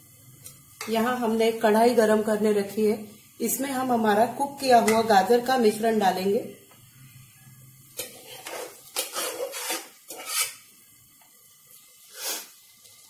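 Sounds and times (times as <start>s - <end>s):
spatula scraping metal pot: 8.0s - 10.7s.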